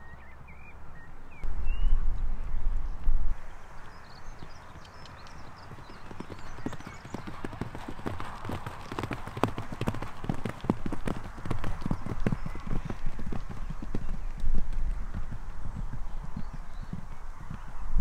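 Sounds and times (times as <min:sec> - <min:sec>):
pony hoofbeats on grass: 0:04.4 - 0:17.9.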